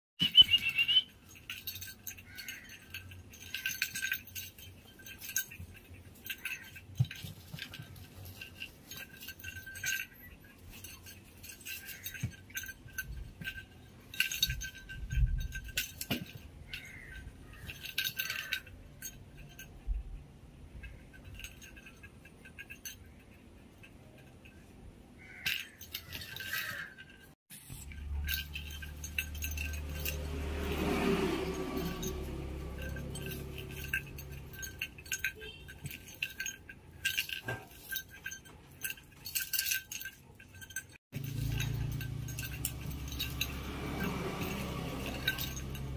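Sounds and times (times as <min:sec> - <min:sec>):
tinsel toy rustling and clinking: 0:00.2 - 0:45.9.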